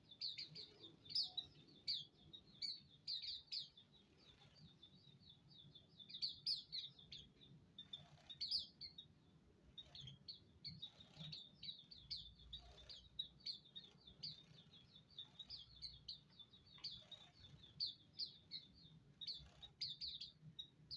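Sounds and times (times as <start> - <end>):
small birds chirping: 0.0 - 20.9.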